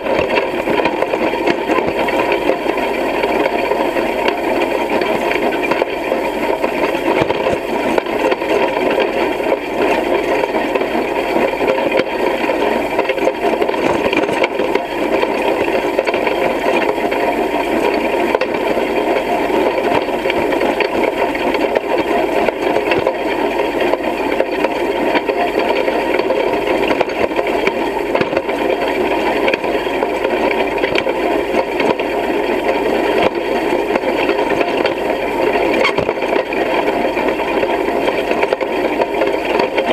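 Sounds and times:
hay rake rattling: 33.9s - 38.4s.

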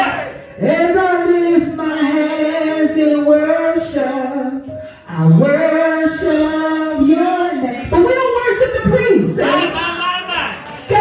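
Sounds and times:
woman singing into a microphone: 0.6s - 9.2s.

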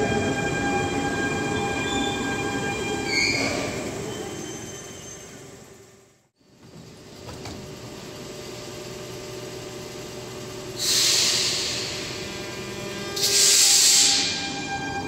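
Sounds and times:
train equipment hum: 0.0s - 4.6s, 5.3s - 15.0s
compressed air hiss: 10.8s - 12.2s, 13.2s - 14.5s.

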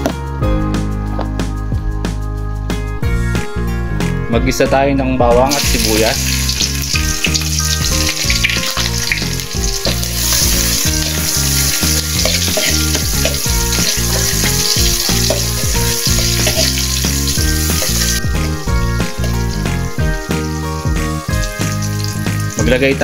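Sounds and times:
garlic and onion sizzling in oil: 5.5s - 23.0s
metal spoon scraping a wok: 12.2s - 13.0s.

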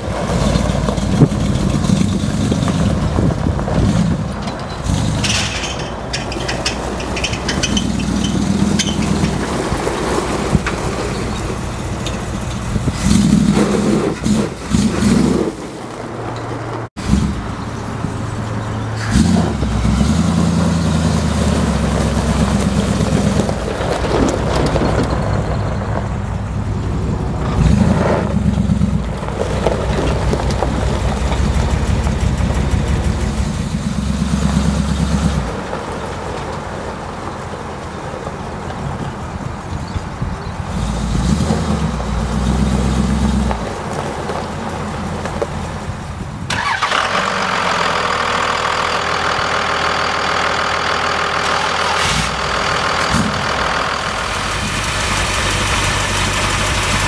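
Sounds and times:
pickup truck engines running: 0.0s - 57.0s
tyres on gravel: 0.0s - 57.0s.

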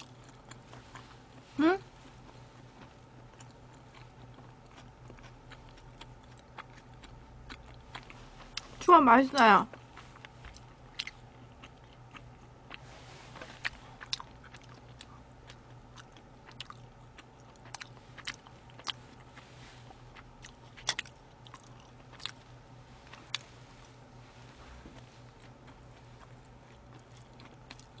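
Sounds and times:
faint low hum: 0.0s - 28.0s
chewing mouth clicks and smacks: 13.6s - 19.3s, 26.2s - 28.0s.

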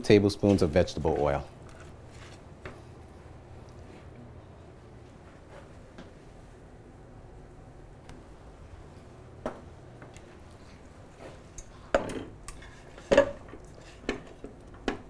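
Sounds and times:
metal pot and utensils clanking: 11.9s - 15.0s.

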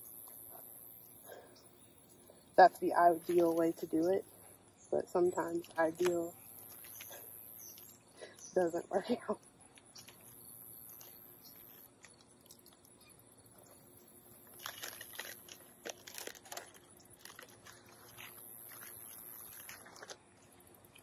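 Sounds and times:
plastic tape crinkling and rustling: 9.7s - 13.0s, 14.4s - 21.0s.

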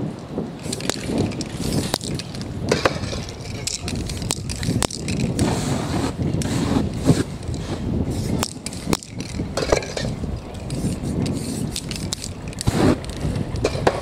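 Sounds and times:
street traffic rumble: 0.0s - 14.0s
spray cans clicking and knocking: 0.6s - 5.4s, 8.4s - 14.0s
spray paint can hissing: 10.8s - 13.0s.

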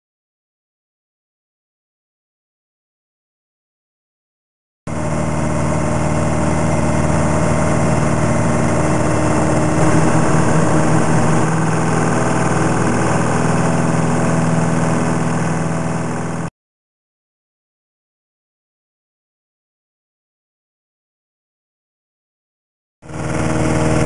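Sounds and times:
plane engine and propeller running: 4.9s - 16.5s, 23.0s - 24.0s.

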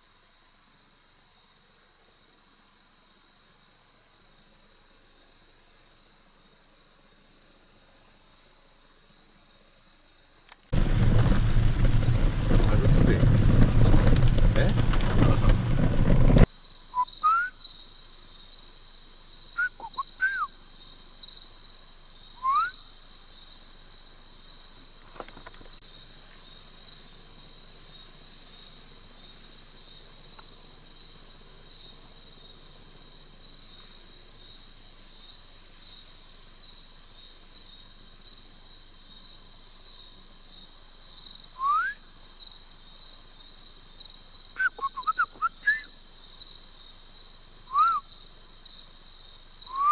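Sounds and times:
night insects chorus: 0.0s - 49.9s
burst of noise: 10.8s - 16.4s
rising whistled animal calls: 16.9s - 17.6s, 19.6s - 20.6s, 22.4s - 22.9s, 41.6s - 42.1s, 44.6s - 46.0s, 47.7s - 48.1s, 49.7s - 49.9s.

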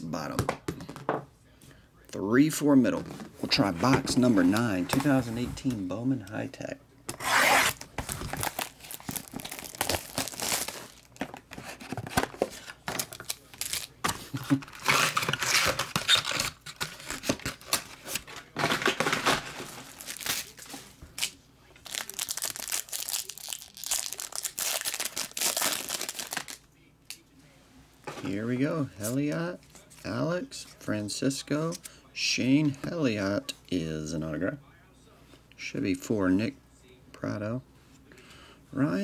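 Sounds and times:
plastic wrap crinkling and tearing: 7.1s - 27.2s.

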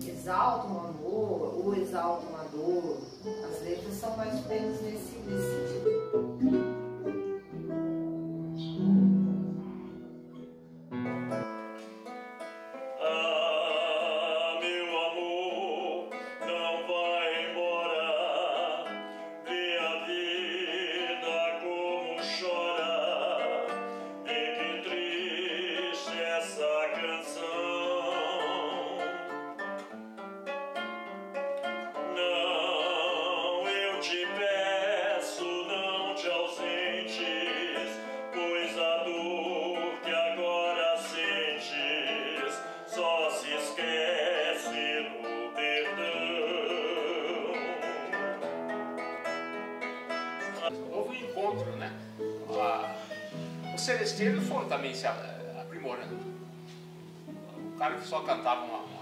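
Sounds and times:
plucked classical guitar: 0.0s - 59.0s
man singing with vibrato: 3.0s - 6.6s, 12.8s - 29.8s, 31.6s - 56.4s.

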